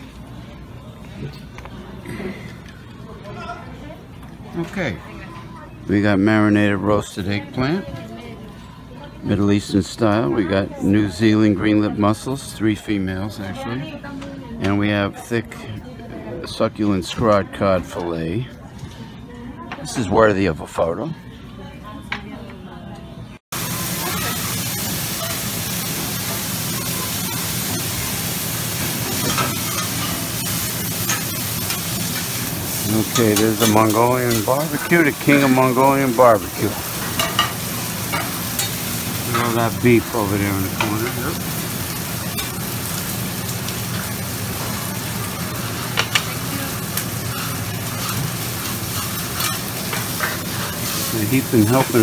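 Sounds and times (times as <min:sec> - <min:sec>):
food sizzling on a griddle: 0:23.5 - 0:52.0.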